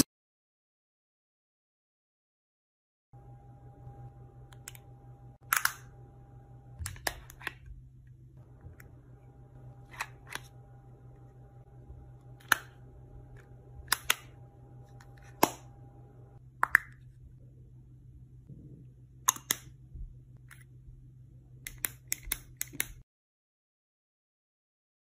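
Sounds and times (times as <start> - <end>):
faint steady hum: 3.2 - 23.0.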